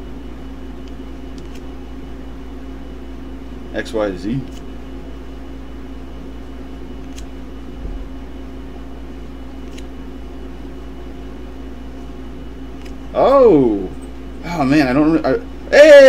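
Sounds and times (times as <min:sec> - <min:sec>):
low background hum: 0:00.0 - 0:16.0
trading cards being flipped: 0:00.9 - 0:01.7, 0:07.0 - 0:07.3, 0:09.6 - 0:09.9, 0:12.7 - 0:13.0.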